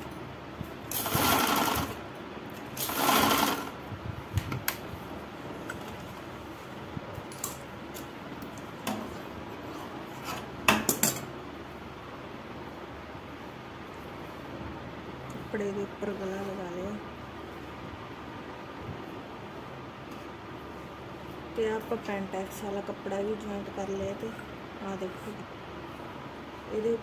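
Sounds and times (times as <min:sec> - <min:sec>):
sewing machine stitching: 0:00.9 - 0:02.0, 0:02.8 - 0:03.8.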